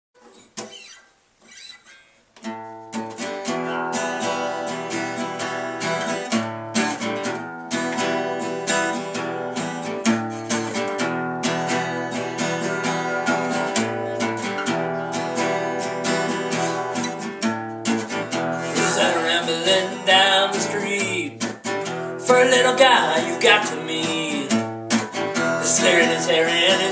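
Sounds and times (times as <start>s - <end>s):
acoustic guitar strumming chords: 0.2s - 26.9s
man singing: 18.3s - 26.9s.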